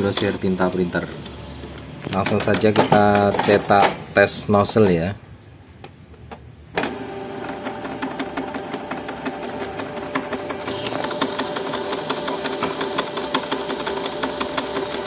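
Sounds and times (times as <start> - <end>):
printer motors whirring: 6.8 - 15.0.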